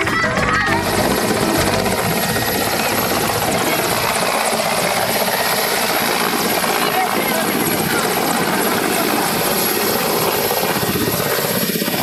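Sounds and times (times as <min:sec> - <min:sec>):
helicopter rotor chop and engine: 0:00.0 - 0:12.0.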